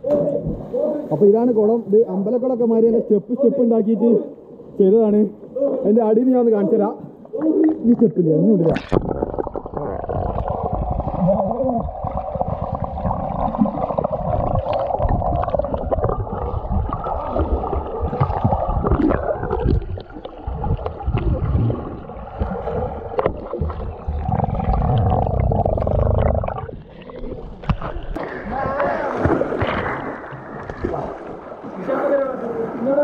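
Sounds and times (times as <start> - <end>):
underwater water rumbling and gurgling: 7.2 - 31.8.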